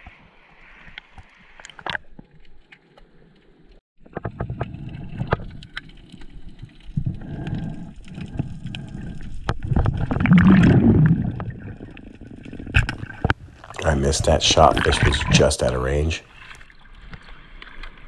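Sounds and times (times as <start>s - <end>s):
underwater water rushing: 4.6s - 18.0s.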